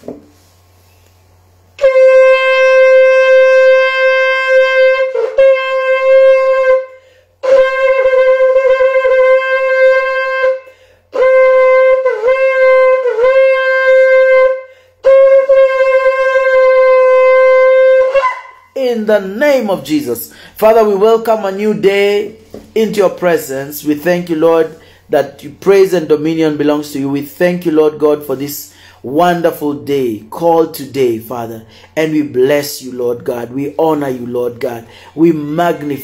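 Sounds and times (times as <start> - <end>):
shofar blasts: 1.8 - 25.0.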